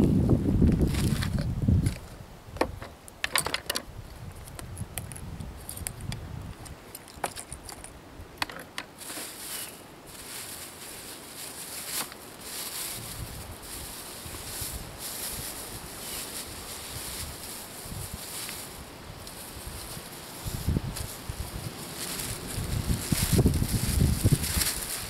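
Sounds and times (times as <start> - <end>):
plastic bag rustling: 8.5 - 25.0.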